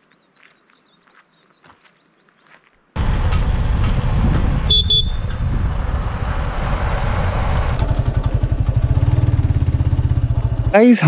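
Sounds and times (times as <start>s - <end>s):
vehicle engine running: 3.0s - 11.0s
wind noise on microphone: 3.1s - 7.8s
horn toots: 4.6s - 5.4s.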